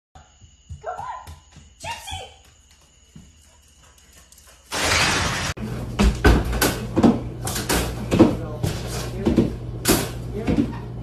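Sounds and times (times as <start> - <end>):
loud crash: 4.7 - 5.6.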